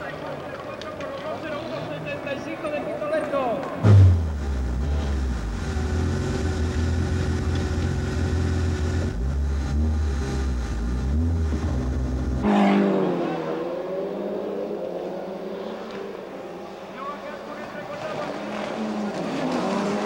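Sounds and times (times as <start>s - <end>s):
rally car engines revving: 0.5s - 20.0s
car engine drone inside cabin: 3.8s - 12.5s.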